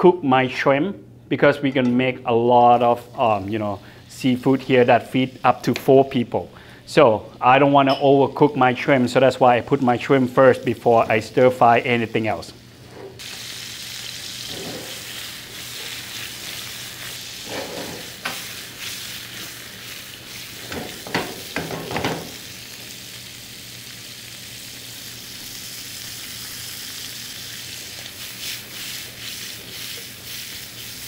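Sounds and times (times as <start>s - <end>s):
prawns sizzling in hot oil: 12.6s - 31.0s
utensil scraping frying pan: 14.4s - 19.6s, 20.3s - 22.4s.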